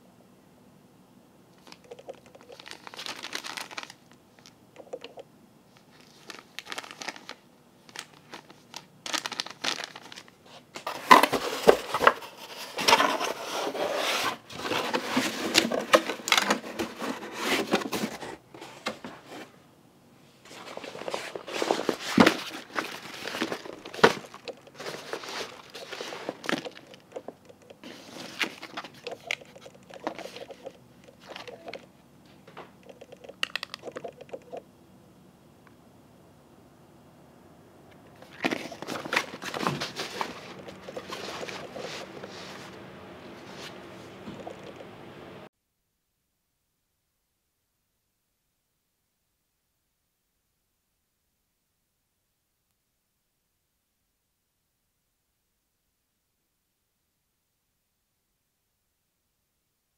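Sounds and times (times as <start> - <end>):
plastic packaging crinkling: 1.6 - 5.2, 5.8 - 18.3, 20.5 - 31.9, 38.1 - 42.8.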